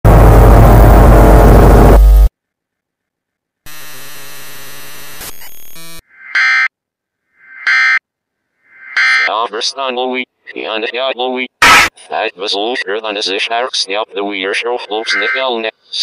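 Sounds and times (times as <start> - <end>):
steady electronic buzz: 0.0 - 2.3, 3.7 - 6.0
loud distorted tv static: 0.1 - 2.3, 3.7 - 6.0, 11.6 - 12.0, 12.6 - 15.7.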